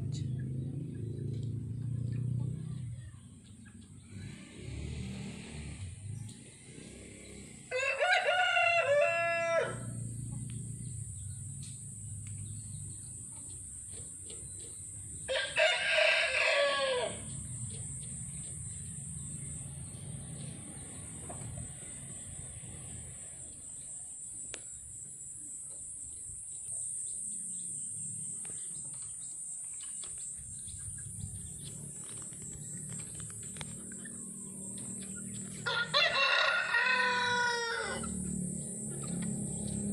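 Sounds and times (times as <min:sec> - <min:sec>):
rooster crowing: 0:07.6 - 0:10.1, 0:15.3 - 0:17.4, 0:35.6 - 0:38.4.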